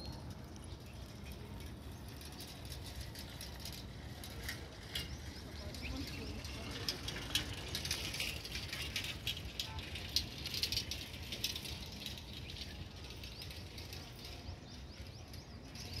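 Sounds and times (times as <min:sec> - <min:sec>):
birds chirping and chattering: 0:04.2 - 0:07.5, 0:12.2 - 0:16.0.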